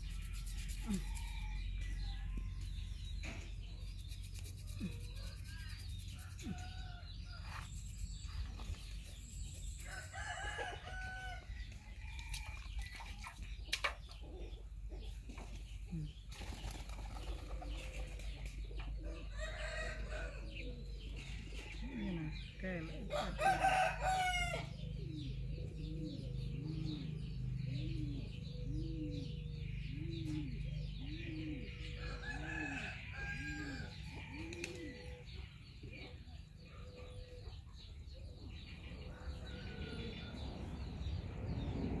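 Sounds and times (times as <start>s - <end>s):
rooster crowing: 23.1s - 24.7s.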